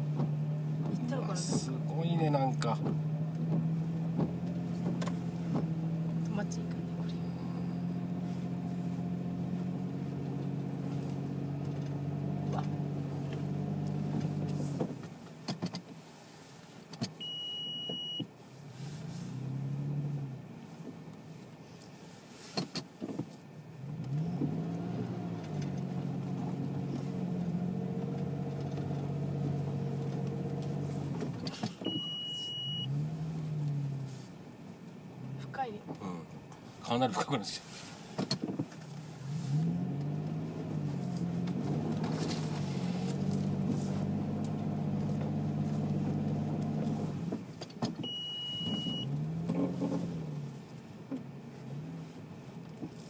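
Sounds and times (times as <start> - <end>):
car engine pulling through snow: 0.0 - 53.0
short high beep: 17.2 - 18.2, 31.8 - 32.9, 48.1 - 49.1.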